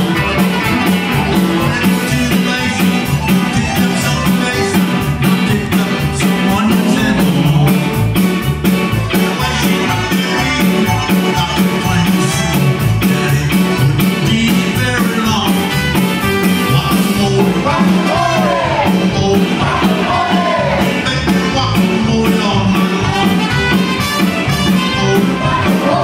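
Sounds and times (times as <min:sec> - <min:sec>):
trumpet: 0:00.0 - 0:01.7, 0:05.8 - 0:12.6, 0:22.8 - 0:26.0
button accordion: 0:00.0 - 0:14.2
band playing instrumental: 0:00.0 - 0:26.0
drums quick steady beat: 0:00.0 - 0:26.0.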